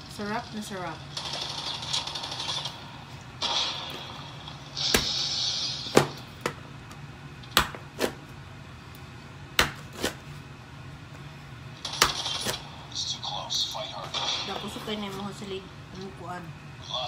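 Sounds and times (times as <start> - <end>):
knife chopping on plastic board: 7.5 - 8.2, 9.6 - 10.2.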